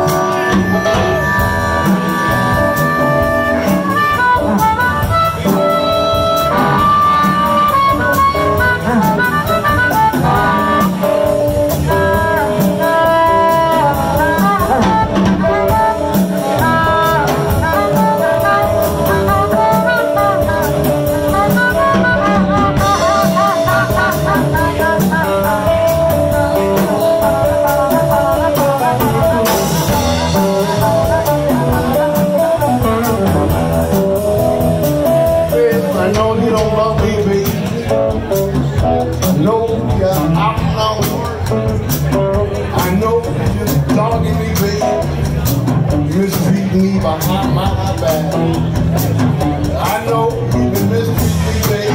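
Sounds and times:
amplified harmonica lead: 0.0 - 38.3
drum kit: 0.0 - 51.9
electric guitar: 0.0 - 51.9
upright bass: 0.0 - 51.9.

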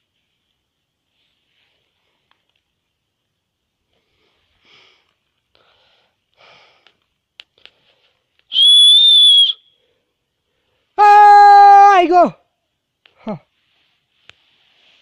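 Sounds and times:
faint breaths: 3.8 - 8.4
person whistling high-pitched: 8.5 - 9.7.

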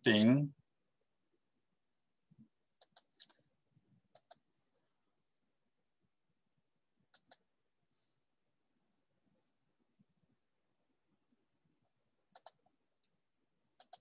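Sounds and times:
computer mouse clicks: 2.8 - 3.4, 4.1 - 4.5, 7.1 - 7.5, 12.3 - 13.2, 13.8 - 14.0.

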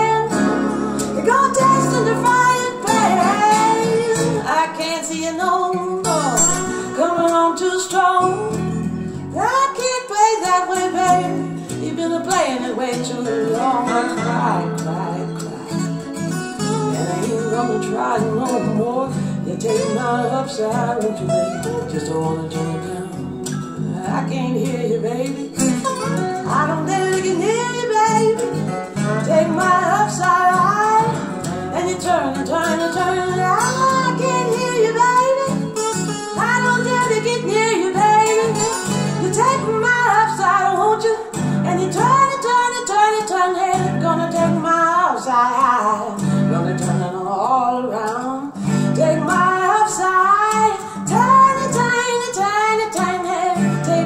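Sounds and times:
song with acoustic guitar: 0.0 - 54.0
woman singing: 0.0 - 54.0.

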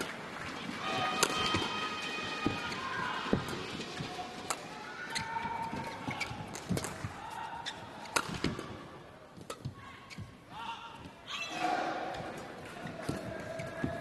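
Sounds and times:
murmur of hall: 0.0 - 14.0
racket striking shuttlecock: 1.1 - 1.7, 5.8 - 7.2, 8.0 - 8.8, 9.4 - 10.3
shoes squeaking on court floor: 1.2 - 8.7, 9.3 - 11.1, 12.2 - 14.0.

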